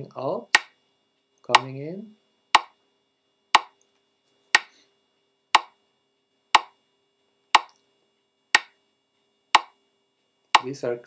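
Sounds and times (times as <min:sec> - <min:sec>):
metronome clicks: 0:00.5 - 0:00.7, 0:03.6 - 0:03.8, 0:07.6 - 0:07.8.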